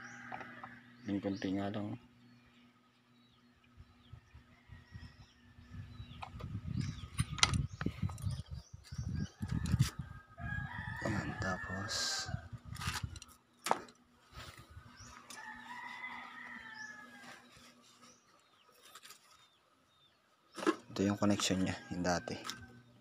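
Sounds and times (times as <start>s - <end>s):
rooster crowing: 0.0s - 1.0s, 9.3s - 12.5s, 15.0s - 17.5s, 21.4s - 22.9s
rustling handling noise: 17.2s - 19.6s.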